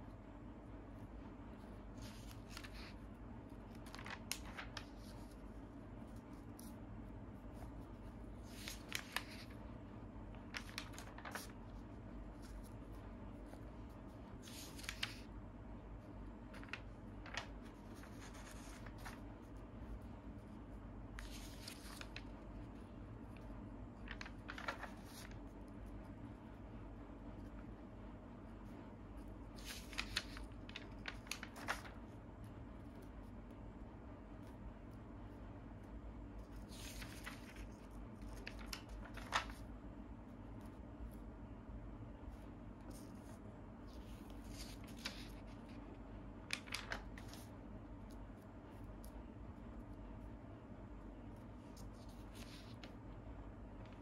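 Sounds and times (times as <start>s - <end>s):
faint low hum: 0.0s - 54.0s
paper pages rustling: 1.8s - 15.3s, 16.2s - 20.1s, 21.2s - 25.7s, 29.5s - 32.2s, 36.3s - 39.8s, 42.3s - 48.2s, 51.5s - 54.0s.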